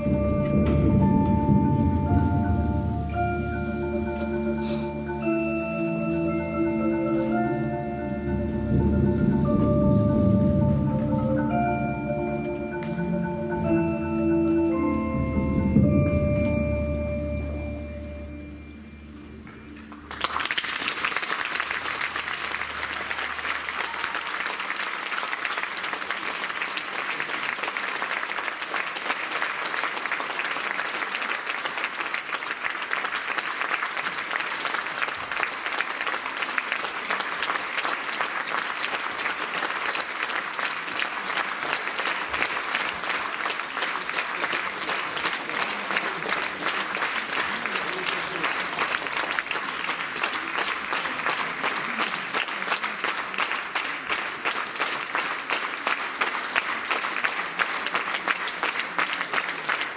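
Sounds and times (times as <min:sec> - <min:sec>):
percussion low ring: 0:00.0 - 0:20.2
audience applause: 0:19.4 - 0:59.9.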